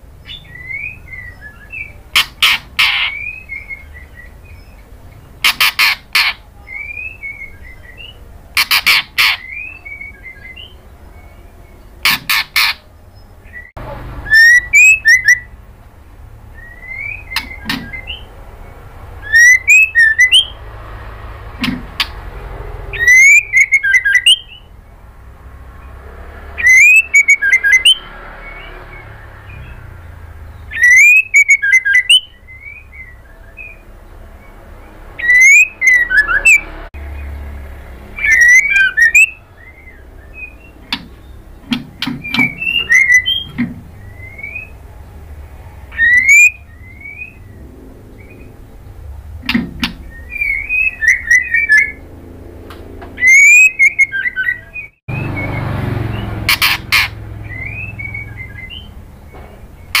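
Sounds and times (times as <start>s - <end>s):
bird singing whistled phrases: 0.2s - 4.8s, 6.6s - 11.6s, 13.5s - 15.5s, 16.5s - 18.3s, 19.2s - 20.6s, 22.9s - 24.7s, 26.6s - 29.8s, 30.6s - 33.9s, 35.2s - 36.6s, 38.2s - 41.4s, 42.2s - 44.8s, 45.9s - 47.6s, 49.9s - 52.0s, 53.2s - 56.3s, 56.9s - 58.9s.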